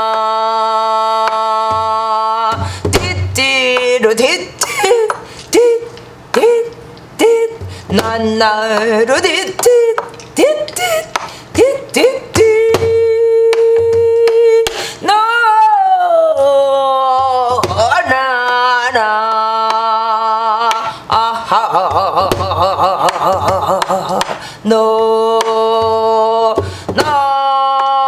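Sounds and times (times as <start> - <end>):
woman singing wordless syllables: 0.0 - 28.0
stick striking barrel drum: 1.6 - 4.0, 7.4 - 14.8, 17.6 - 18.2, 22.2 - 24.4, 25.4 - 27.3.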